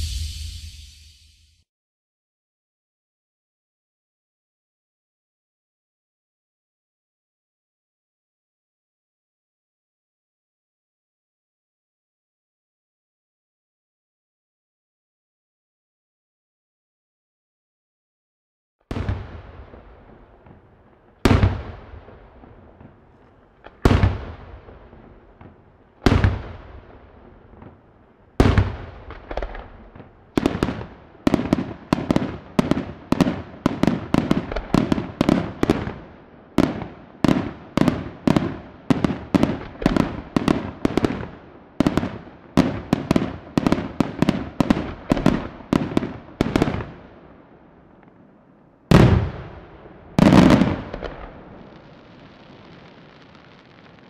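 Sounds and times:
fireworks shells bursting: 0.0s - 1.6s.

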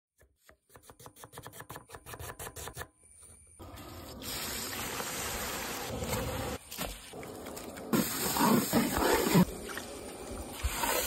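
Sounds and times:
hot oil sizzling: 3.6s - 7.2s.

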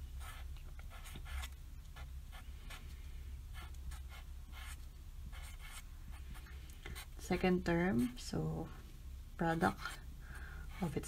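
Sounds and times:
low steady hum: 0.0s - 11.0s
marker writing on paper: 0.2s - 2.8s, 3.5s - 6.3s.

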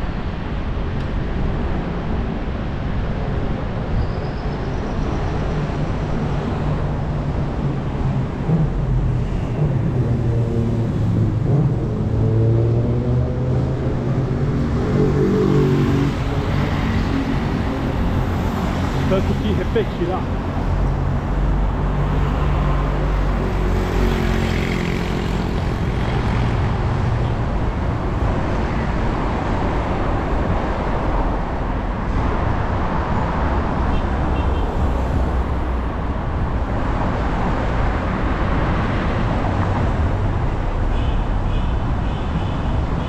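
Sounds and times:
vehicles passing on busy street: 0.0s - 43.0s.

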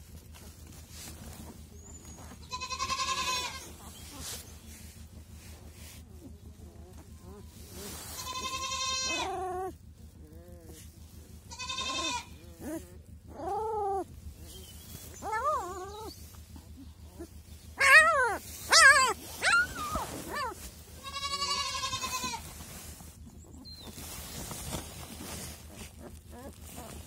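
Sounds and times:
puppies crying: 5.7s - 27.0s.

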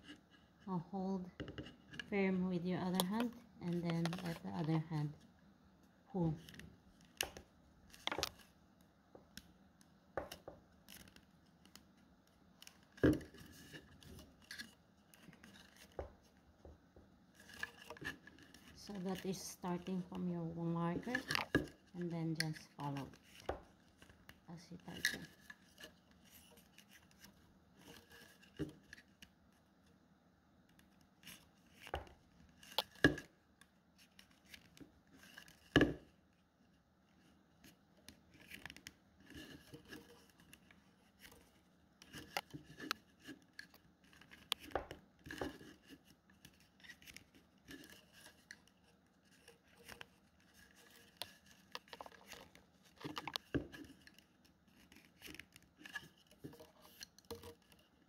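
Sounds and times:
rattan strips creaking on bamboo: 17.4s - 29.2s, 38.3s - 58.0s
sharp clicks and rustles: 37.2s - 58.0s.

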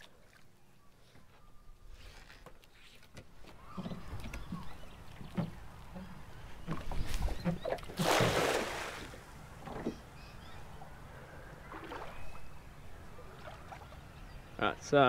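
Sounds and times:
net splashing into water: 7.9s - 9.2s.

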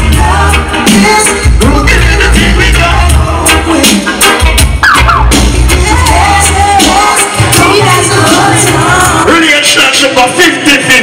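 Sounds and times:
person singing: 0.0s - 4.5s, 5.2s - 9.4s
dancehall reggae music: 0.0s - 11.0s
heavy bass line: 1.5s - 3.8s, 4.4s - 6.9s.

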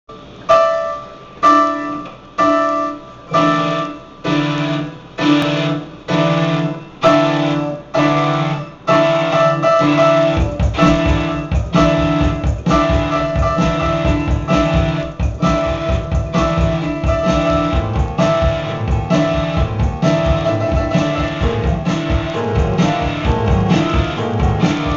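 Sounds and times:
keyboard chords: 0.1s - 24.9s
bass and drums: 8.2s - 24.9s.

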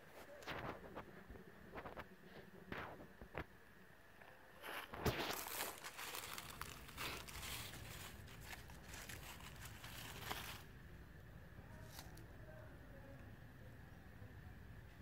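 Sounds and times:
faint steady background noise: 0.0s - 15.0s
dry leaves rustling and crunching: 4.6s - 10.7s.

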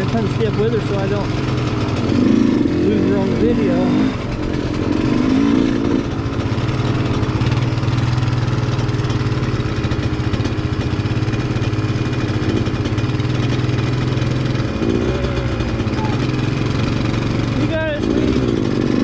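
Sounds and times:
atv engine running: 0.0s - 19.0s.

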